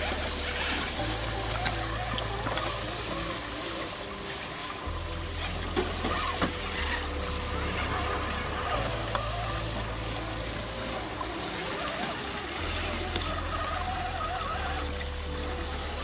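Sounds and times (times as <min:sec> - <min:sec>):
creek water trickling: 0:00.0 - 0:16.0
electric motor and gears whining: 0:00.0 - 0:16.0.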